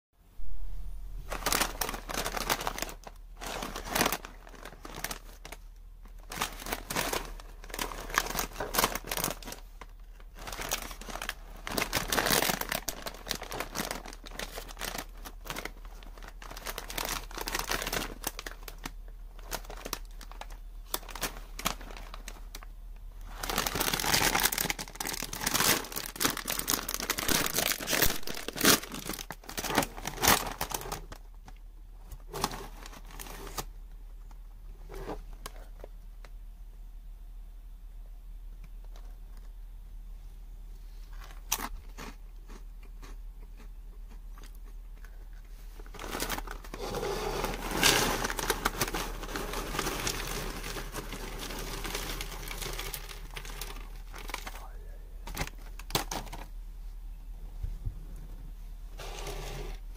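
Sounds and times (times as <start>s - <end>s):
plastic bag crinkling: 1.1s - 35.9s, 44.4s - 56.5s
plastic bag tearing: 1.3s - 5.6s, 6.2s - 22.7s, 23.3s - 31.2s, 45.8s - 54.6s.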